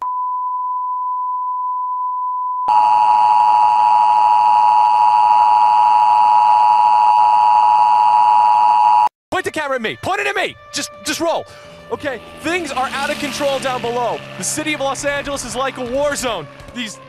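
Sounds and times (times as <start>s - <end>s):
steady pure tone: 2.7s - 9.1s.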